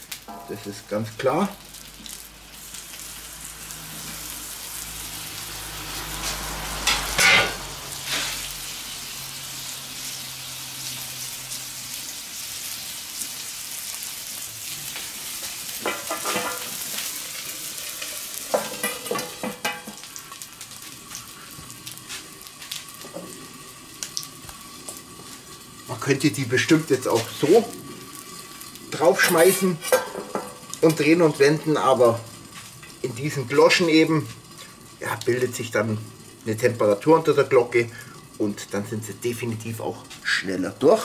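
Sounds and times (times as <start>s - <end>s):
potatoes sizzling on griddle: 0.0s - 41.0s
metal knocks on griddle: 0.3s - 0.5s, 6.8s - 7.6s, 15.8s - 16.8s, 18.5s - 20.1s, 29.9s - 30.6s.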